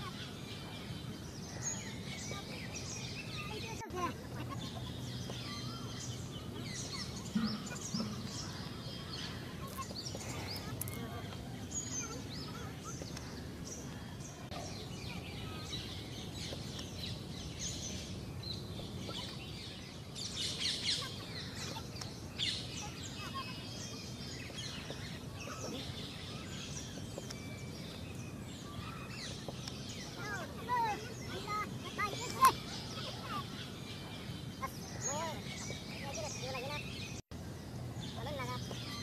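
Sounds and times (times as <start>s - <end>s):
birds chirping: 0.0s - 39.0s
people laughing and chattering: 2.0s - 16.0s, 20.6s - 24.2s, 30.0s - 36.9s.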